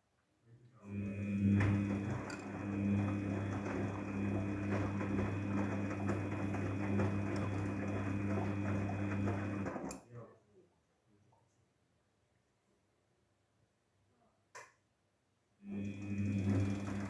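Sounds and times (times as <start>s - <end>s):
washing machine motor hum: 0.8s - 10.0s, 15.6s - 17.0s
water and wet clothes sloshing: 1.0s - 9.9s.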